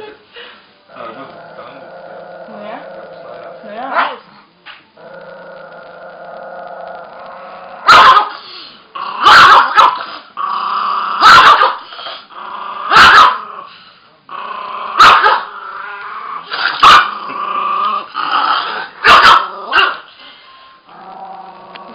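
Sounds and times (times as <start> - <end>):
dog growling: 0.9 - 4.4, 5.0 - 20.0, 20.9 - 21.9
dog barking sharply: 7.9 - 8.3, 9.2 - 10.0, 11.2 - 11.8, 15.0 - 15.4, 19.0 - 20.0.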